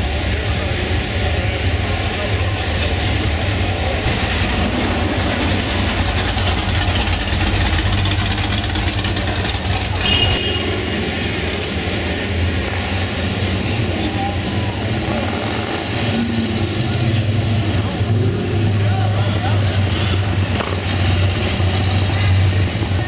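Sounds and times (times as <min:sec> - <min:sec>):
car engines idling and rumbling: 0:00.0 - 0:23.0.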